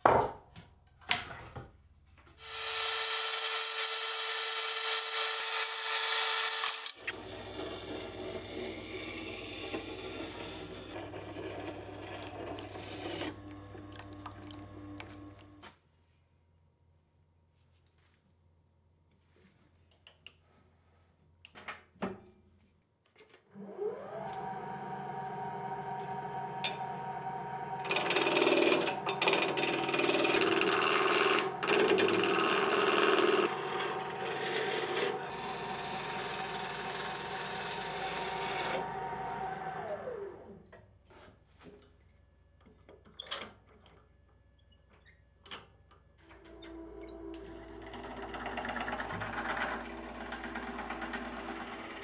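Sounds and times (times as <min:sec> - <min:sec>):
tool scraping wood: 0:06.5 - 0:13.5, 0:27.8 - 0:38.8
lathe motor whining: 0:23.6 - 0:40.6, 0:46.5 - 0:52.0.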